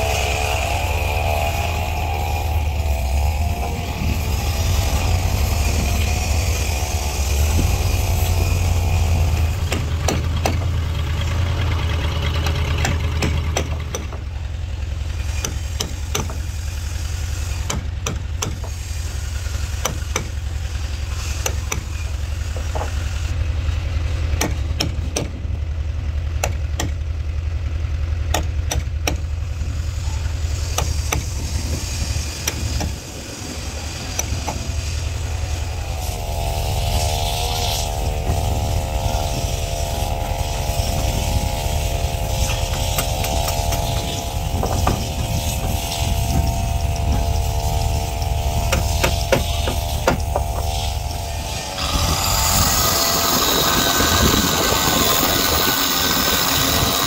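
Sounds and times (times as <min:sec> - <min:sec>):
low engine drone: 0:00.0 - 0:57.0
hammer striking chisel: 0:09.7 - 0:10.7, 0:12.4 - 0:14.3, 0:15.3 - 0:16.5, 0:17.6 - 0:18.8, 0:19.8 - 0:20.4, 0:21.4 - 0:21.9, 0:24.4 - 0:25.4, 0:26.4 - 0:27.0, 0:28.3 - 0:29.3, 0:30.8 - 0:31.3, 0:42.5 - 0:45.0, 0:48.7 - 0:50.7
electric drill running: 0:35.1 - 0:57.0.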